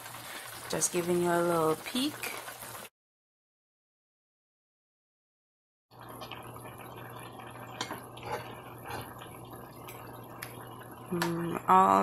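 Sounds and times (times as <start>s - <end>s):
stew bubbling in a pot: 0.0s - 2.9s, 5.9s - 12.0s.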